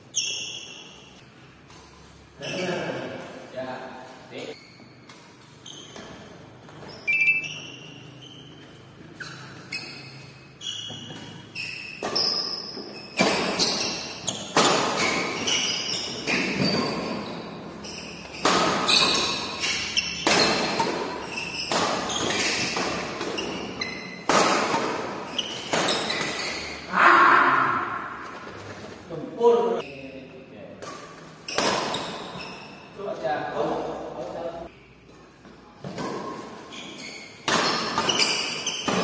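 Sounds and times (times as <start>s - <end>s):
racket hitting shuttlecock: 10.8s - 26.9s, 30.8s - 32.7s, 37.4s - 39.0s.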